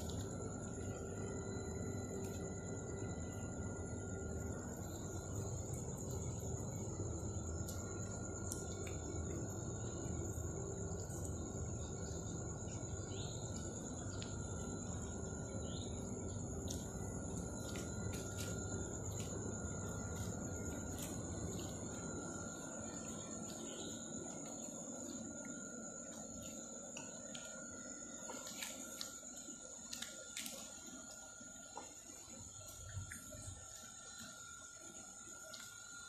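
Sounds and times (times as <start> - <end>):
low background rumble: 0.0 - 28.4
crickets trilling: 0.0 - 36.0.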